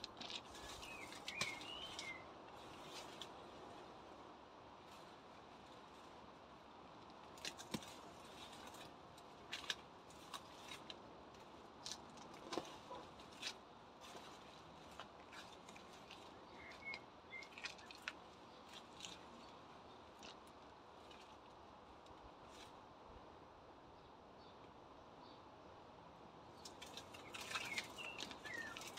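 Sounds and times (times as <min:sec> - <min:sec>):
leaves rustling and stems snapping: 0:00.0 - 0:03.4, 0:07.0 - 0:22.8, 0:26.6 - 0:28.9.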